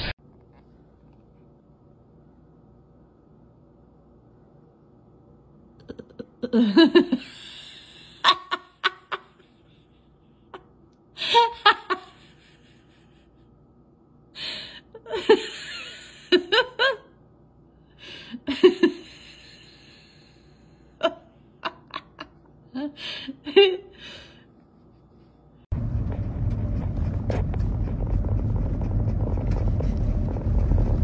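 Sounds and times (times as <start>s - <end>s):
person laughing breathily: 6.4s - 13.6s, 14.4s - 17.0s, 18.0s - 24.4s.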